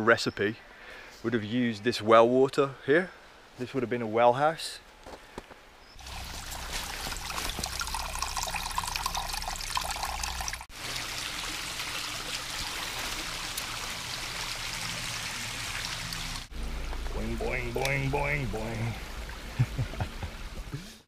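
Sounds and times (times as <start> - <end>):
water trickling: 6.0 - 20.8.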